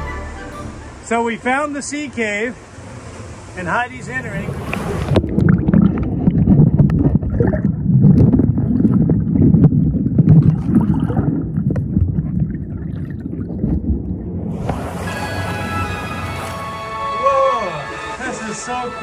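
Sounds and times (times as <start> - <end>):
ocean surf rumbling: 0.0 - 19.0
wind buffeting microphone: 4.1 - 16.5.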